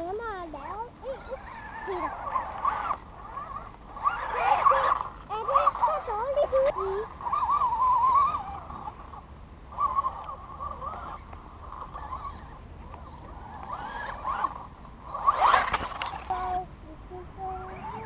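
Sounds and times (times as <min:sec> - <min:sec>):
electric rc car motor whining: 0:00.0 - 0:18.0.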